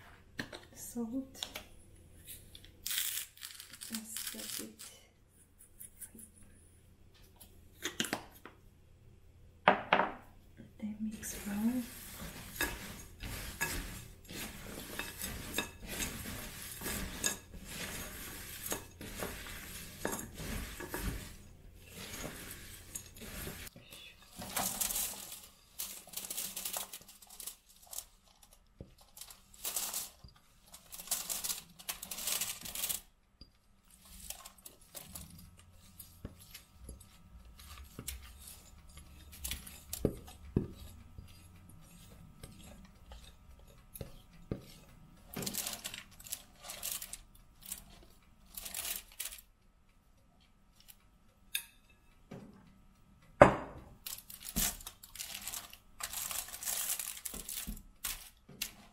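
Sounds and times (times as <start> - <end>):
dry oats rattling in a bowl: 2.9 - 5.0, 11.1 - 23.7, 24.3 - 33.1, 33.9 - 49.4, 54.0 - 58.8
spoon scraping and clinking: 11.2 - 23.7, 35.8 - 44.8.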